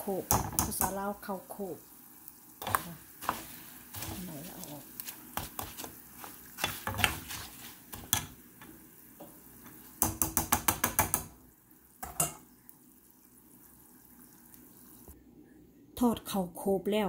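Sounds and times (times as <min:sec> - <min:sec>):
rice stirred in hot oil: 0:00.0 - 0:15.2
strainer scraping and tapping pan: 0:05.4 - 0:09.8.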